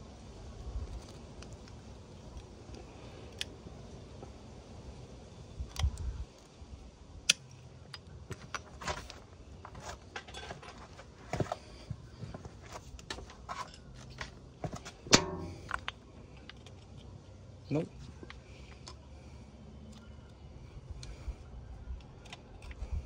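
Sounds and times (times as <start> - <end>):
metal engine parts clinking: 7.9 - 11.6, 12.3 - 17.2.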